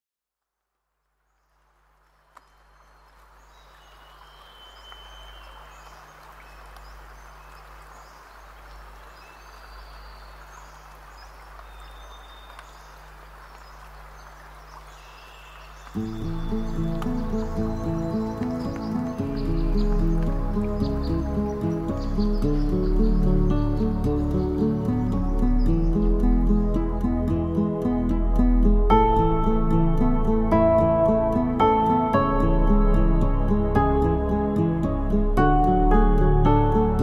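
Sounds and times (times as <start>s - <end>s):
small birds chirping: 1.2s - 27.1s
instrumental background music: 15.9s - 37.0s.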